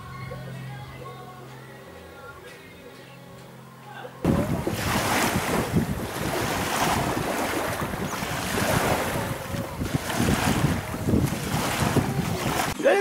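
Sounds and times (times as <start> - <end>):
wind buffeting microphone: 4.3 - 12.8.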